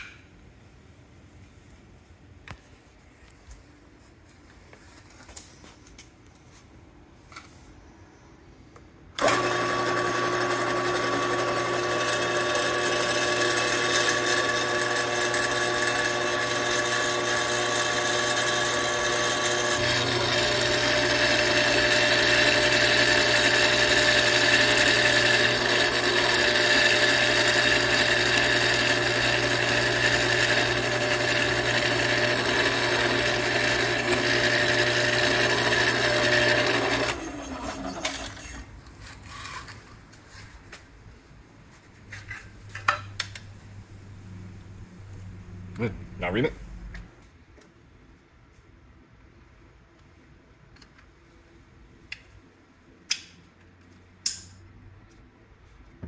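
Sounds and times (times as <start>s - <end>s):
drill press drilling metal: 9.2s - 38.6s.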